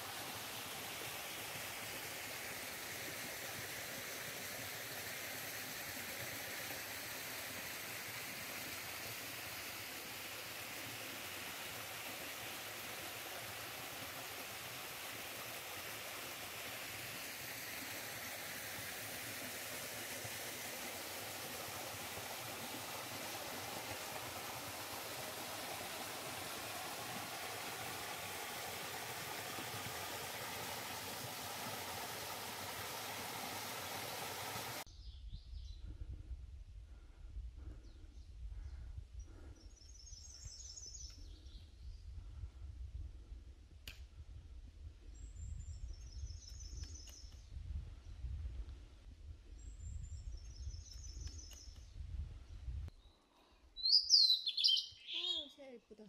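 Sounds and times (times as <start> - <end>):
stream rushing over rocks: 0.0 - 34.9.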